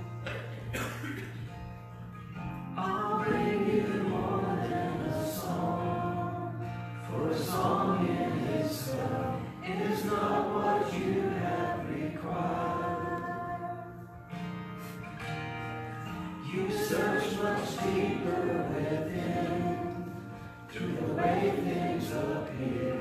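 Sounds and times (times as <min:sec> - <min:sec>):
woman singing worship song: 0:02.8 - 0:14.2, 0:16.4 - 0:23.0.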